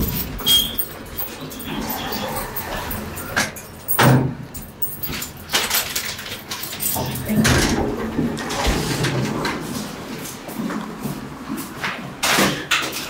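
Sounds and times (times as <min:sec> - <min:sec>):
elevator doors and car clunking: 0:00.0 - 0:05.4.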